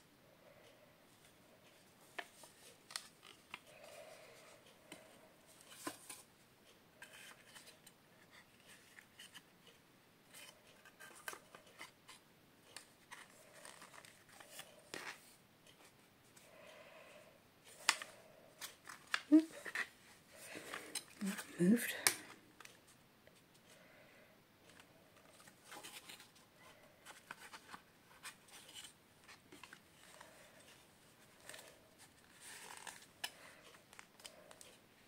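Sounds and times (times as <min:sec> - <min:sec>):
picture frame backing clicks and scrapes: 0:07.0 - 0:16.4, 0:24.7 - 0:34.8.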